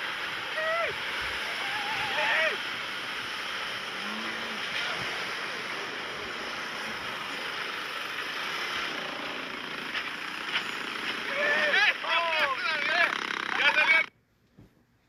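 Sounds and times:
ocean surf: 0:00.0 - 0:10.4
trucks driving through sand: 0:00.0 - 0:14.1
wind: 0:00.0 - 0:15.0.

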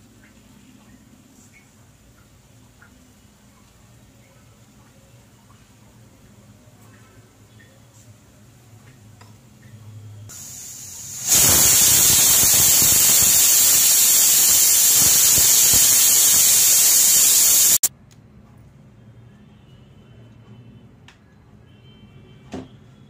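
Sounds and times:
pressure cooker steam hissing: 0:10.3 - 0:17.9.

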